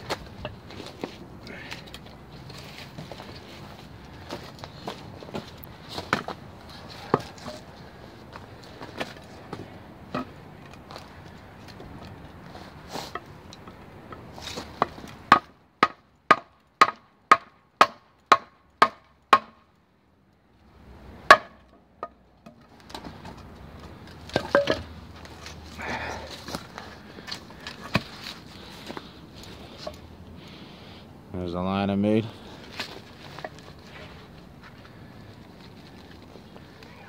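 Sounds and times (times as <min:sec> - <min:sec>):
wood scuffing: 0:02.4 - 0:07.7.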